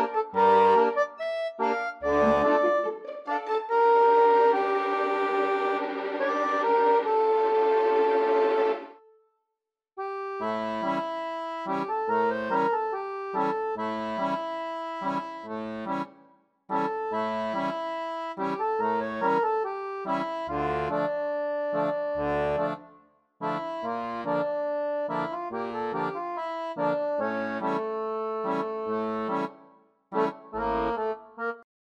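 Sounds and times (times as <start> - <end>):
instrumental background music: 0.0 - 9.2, 10.0 - 31.6.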